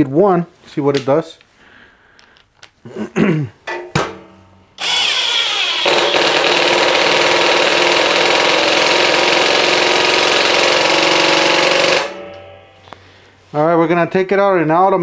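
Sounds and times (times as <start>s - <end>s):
impact driver hammer rattling: 3.7s - 13.1s
impact driver motor spinning: 4.8s - 12.2s.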